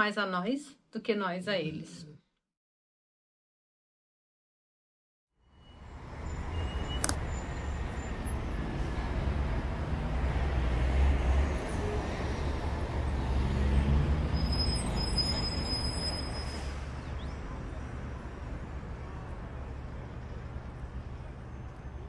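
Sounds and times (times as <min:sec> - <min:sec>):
low rumble of road traffic: 0:05.4 - 0:22.0
thin high squeal: 0:14.3 - 0:16.8.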